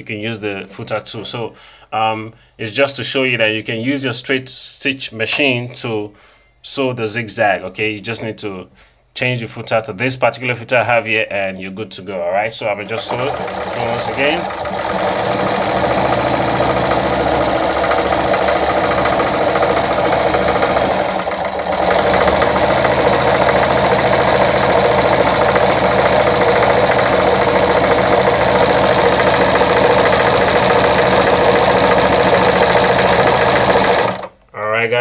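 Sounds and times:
sewing machine running: 0:12.7 - 0:34.4.

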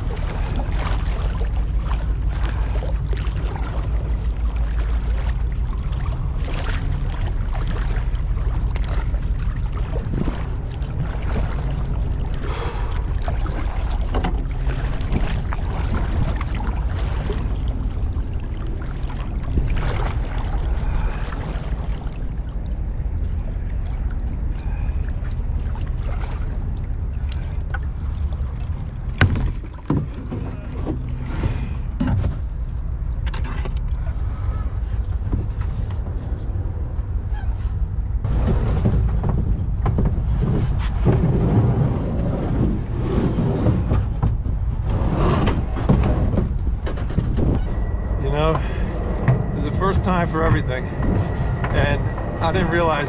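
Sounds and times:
steady low rumble: 0:00.0 - 0:53.0
water sloshing: 0:00.0 - 0:53.0
kayak scraping and bumping: 0:09.9 - 0:18.2, 0:29.1 - 0:36.6, 0:37.3 - 0:53.0.

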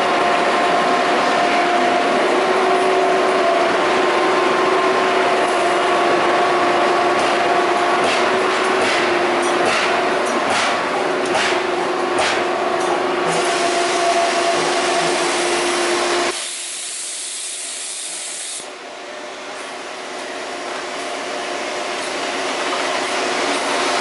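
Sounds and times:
hiss: 0:13.4 - 0:18.7.

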